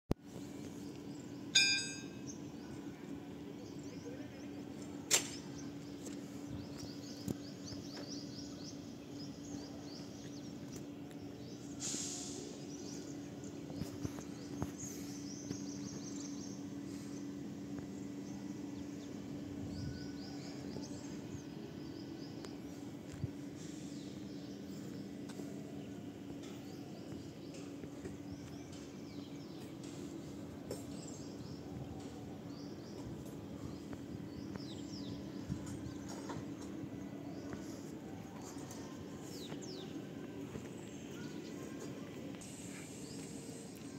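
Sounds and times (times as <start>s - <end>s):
steady low hum: 0.2s - 43.9s
small birds chirping: 0.3s - 43.9s.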